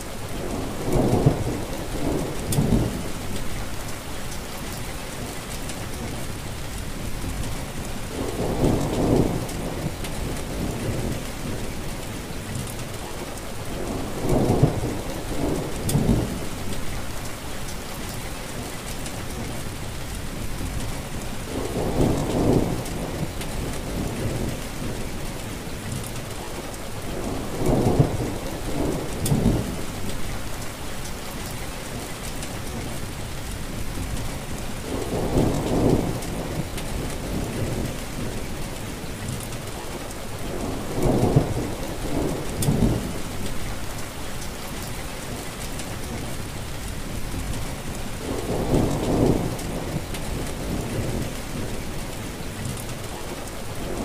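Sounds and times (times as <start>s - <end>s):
heavy rain: 0.0s - 54.0s
thunder rumbling: 0.3s - 3.9s, 7.2s - 11.8s, 13.7s - 17.4s, 20.4s - 25.6s, 26.2s - 30.6s, 32.8s - 44.2s, 44.8s - 54.0s.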